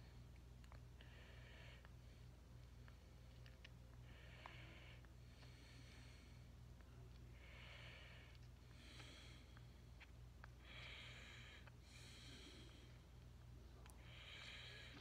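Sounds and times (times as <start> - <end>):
faint breathing: 0.0 - 15.0
steady low hum: 0.0 - 15.0.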